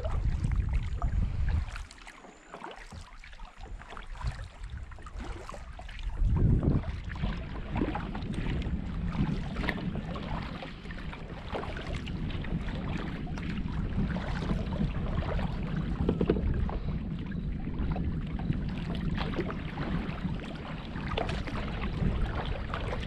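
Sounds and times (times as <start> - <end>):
wind rumble on microphone: 0.0 - 2.2, 2.8 - 23.0
water splashing against kayak: 0.0 - 23.0.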